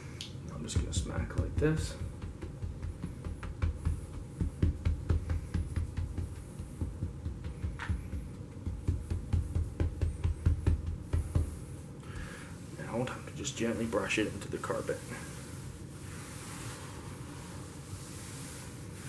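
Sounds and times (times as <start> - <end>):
brush thumping on carpet: 0.6 - 11.8.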